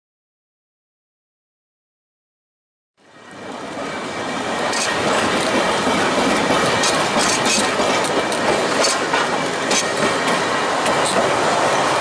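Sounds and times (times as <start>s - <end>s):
tram wheels rumbling on rails: 3.0s - 12.0s.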